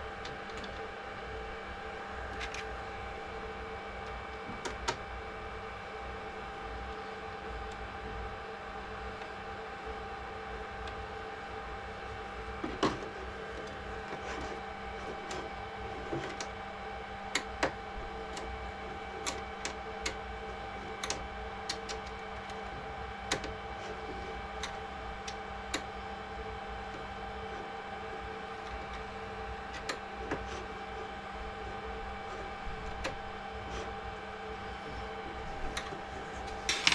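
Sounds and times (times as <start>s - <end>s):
electrical hum: 0.0s - 36.9s
plastic parts clicking: 36.6s - 36.9s.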